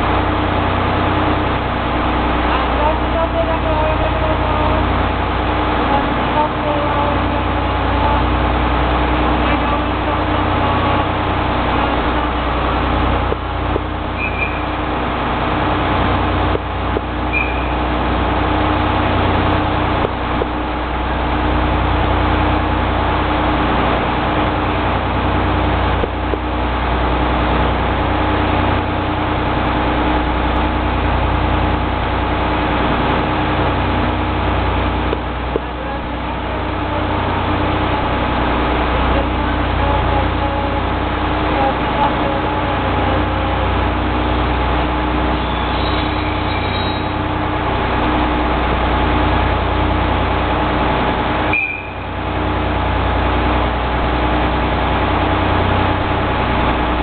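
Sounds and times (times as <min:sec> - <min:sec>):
low hum of railway equipment: 0:00.0 - 0:57.0
short high beeps: 0:51.5 - 0:52.0.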